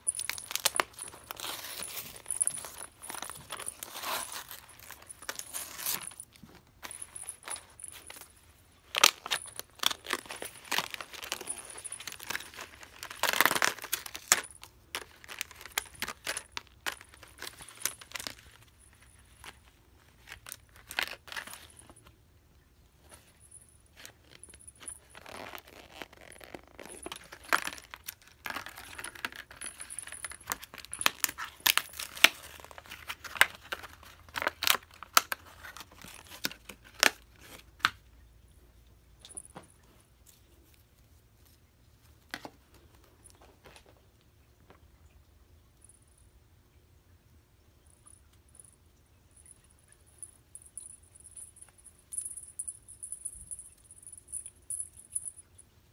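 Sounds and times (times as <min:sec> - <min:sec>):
packaging crinkling and tearing: 0:00.0 - 0:08.2, 0:08.9 - 0:18.6, 0:19.3 - 0:22.0, 0:24.0 - 0:38.0.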